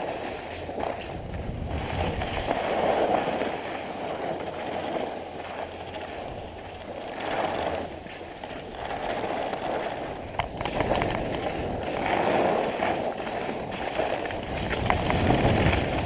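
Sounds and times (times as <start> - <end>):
skis scraping over snow: 0.0 - 16.0
sharp clicks: 10.4 - 11.5.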